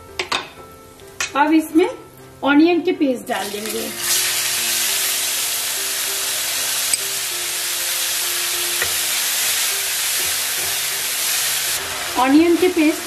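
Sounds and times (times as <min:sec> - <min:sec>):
onion paste sizzling in oil: 0:03.3 - 0:13.0.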